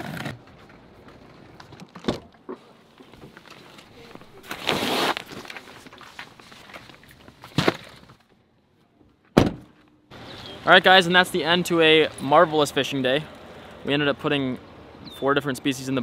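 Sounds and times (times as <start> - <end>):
plastic bag rustling: 3.6 - 8.1.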